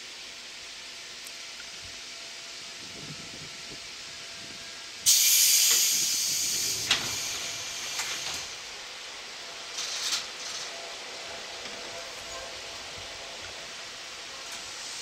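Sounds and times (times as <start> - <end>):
compressed air hissing: 5.0 - 8.6.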